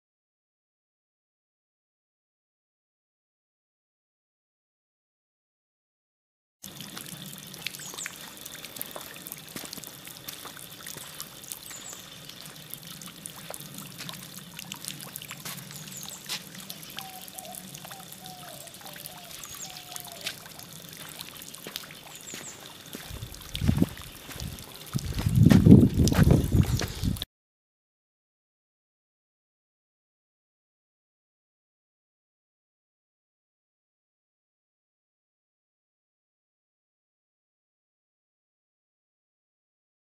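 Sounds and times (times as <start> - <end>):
water trickling: 6.6 - 27.3
lower bird chirps: 7.7 - 8.3, 10.8 - 12.7, 15.2 - 20.6, 21.9 - 22.8
high bird chirps: 15.7 - 20.5, 22.0 - 22.7
low bumps on microphone: 25.0 - 27.0.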